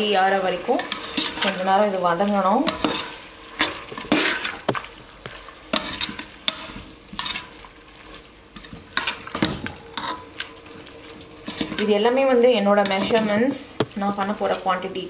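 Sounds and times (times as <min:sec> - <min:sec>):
onions and tomatoes sizzling: 0:00.0 - 0:15.0
metal spatula scraping a pot: 0:00.7 - 0:01.7, 0:02.6 - 0:04.7, 0:05.7 - 0:07.6, 0:08.6 - 0:13.7.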